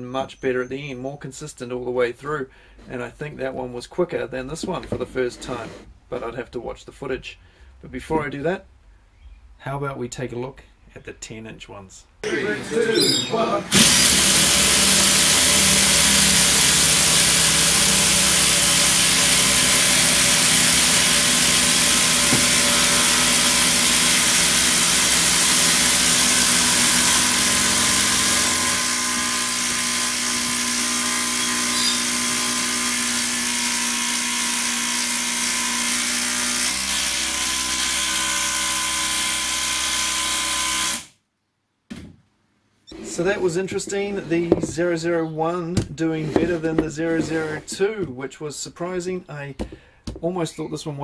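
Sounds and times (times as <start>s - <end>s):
impact drivers hammering: 13.6s - 33.5s.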